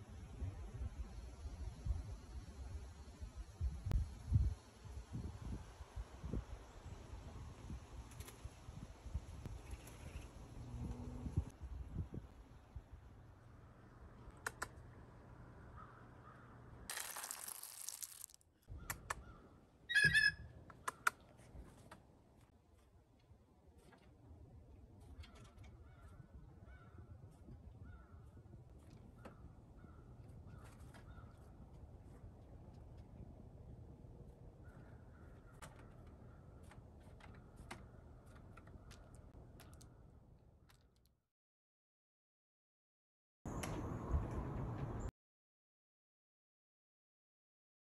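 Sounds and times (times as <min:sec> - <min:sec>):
sharp clicks: 0:14.2 - 0:14.8
seeds rattling into metal lid: 0:16.9 - 0:18.4
harsh blue jay call: 0:19.2 - 0:20.4.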